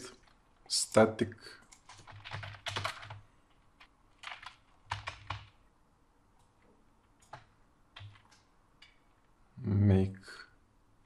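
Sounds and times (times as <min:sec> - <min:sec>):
typing on computer keyboard: 0:01.6 - 0:03.2, 0:03.8 - 0:05.6, 0:07.1 - 0:09.1.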